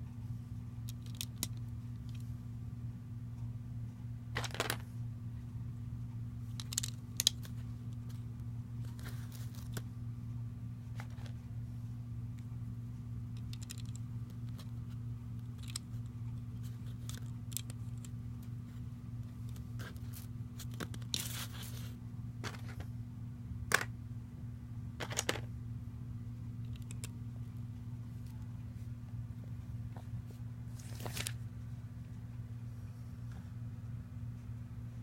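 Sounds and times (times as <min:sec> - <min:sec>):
steady low hum: 0:00.0 - 0:35.0
paper rustle: 0:30.7 - 0:31.4.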